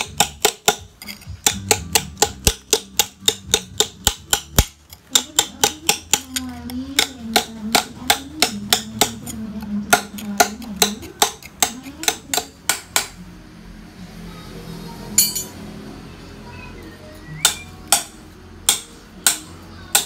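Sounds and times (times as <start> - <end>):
hammer striking steel chisel on stone: 0.0 - 13.2, 17.4 - 20.0.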